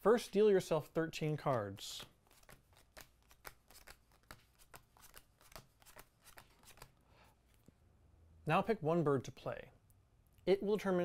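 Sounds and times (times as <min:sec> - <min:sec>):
playing cards flicking: 0:01.4 - 0:07.0.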